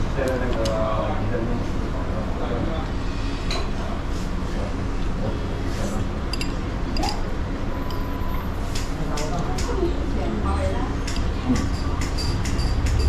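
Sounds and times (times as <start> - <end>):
indistinct chatter: 0.0 - 13.0.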